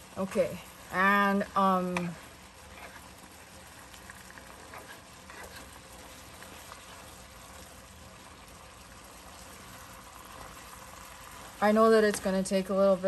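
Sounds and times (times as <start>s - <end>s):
filling sizzling in a skillet: 0.0s - 13.0s
spatula scraping and tapping: 2.7s - 3.1s, 4.5s - 5.8s.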